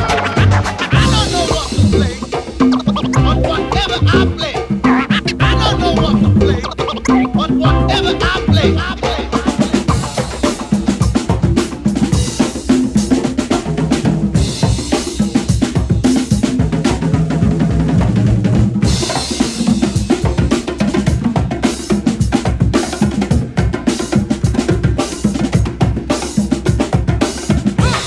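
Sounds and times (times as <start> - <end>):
bass line: 0.0 - 10.0, 27.8 - 28.0
fast drum kit beat: 0.0 - 28.0.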